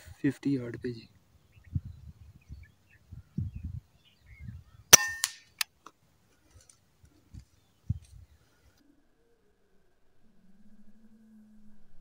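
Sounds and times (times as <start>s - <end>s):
air rifle shot: 4.9s - 5.5s.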